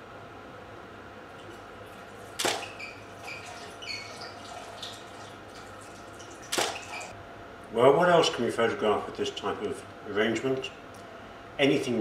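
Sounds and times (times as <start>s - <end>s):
water splashing in a glass tank: 1.4s - 7.1s
water drips and plinks: 2.8s - 7.1s.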